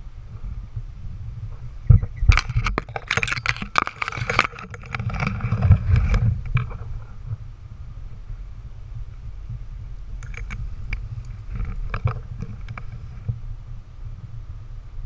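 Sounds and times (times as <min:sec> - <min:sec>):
wind buffeting microphone: 0:00.0 - 0:15.0
sharp clicks and rustling: 0:01.9 - 0:06.9, 0:10.2 - 0:13.1.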